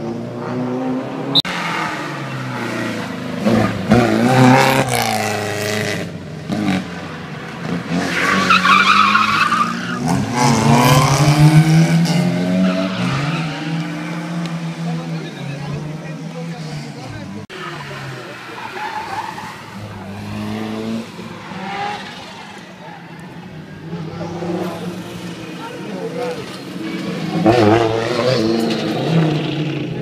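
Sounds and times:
rally car engine revving: 0.0s - 30.0s
tyres squealing: 8.0s - 10.4s, 17.5s - 20.2s.

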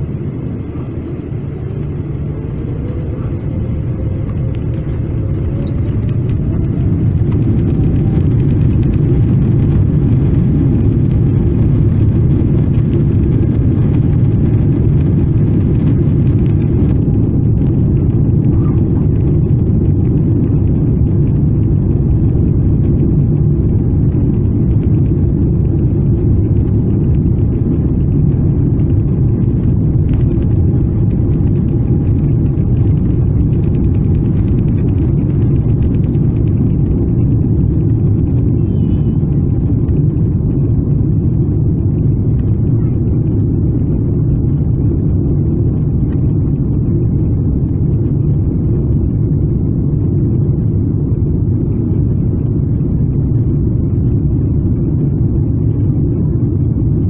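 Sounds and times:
jet engines low rumble in cabin: 0.0s - 57.0s.

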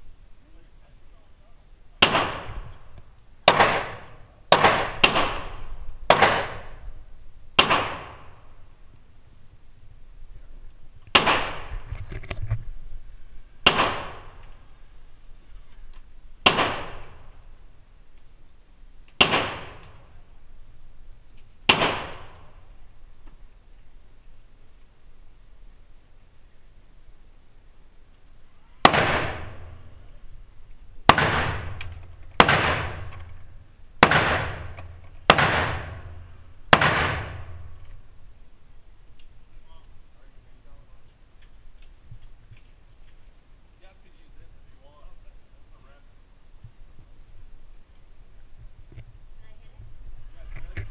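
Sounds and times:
gunshot echo off walls: 2.0s - 2.7s, 3.4s - 6.8s, 7.6s - 8.5s, 11.1s - 11.9s, 13.6s - 14.4s, 16.4s - 17.3s, 19.2s - 20.0s, 21.7s - 22.6s, 28.8s - 29.9s, 31.0s - 33.3s, 34.0s - 37.8s
rifle shots: 2.0s - 2.8s, 3.4s - 6.8s, 7.6s - 8.5s, 11.1s - 11.9s, 13.6s - 14.5s, 16.4s - 17.3s, 19.2s - 20.1s, 21.6s - 22.6s, 28.8s - 29.9s, 31.0s - 33.4s, 34.0s - 37.8s
rifle shots ringing indoors: 34.0s - 37.7s.

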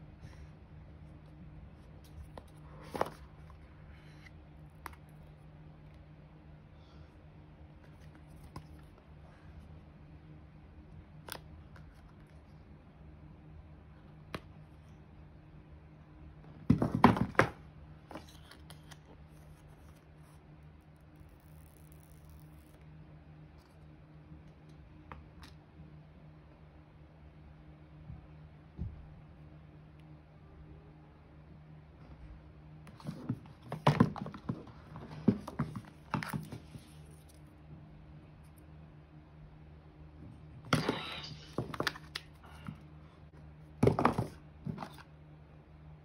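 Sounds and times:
cardboard and paper rustling: 1.8s - 4.3s, 32.9s - 37.4s.

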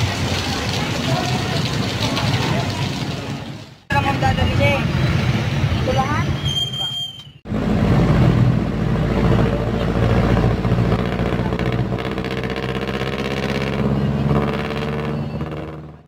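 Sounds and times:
vehicle engine running: 7.5s - 16.0s.

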